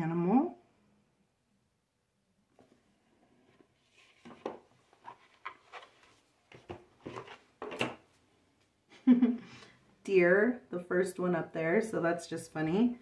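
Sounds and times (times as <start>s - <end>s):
cards rustling and scraping: 3.8s - 7.8s.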